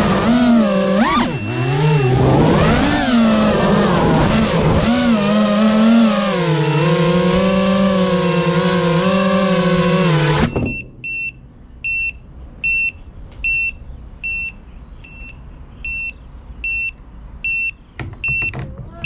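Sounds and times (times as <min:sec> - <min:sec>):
drone motors whining: 0:00.0 - 0:11.4
short high beeps: 0:01.0 - 0:02.4, 0:10.4 - 0:18.5.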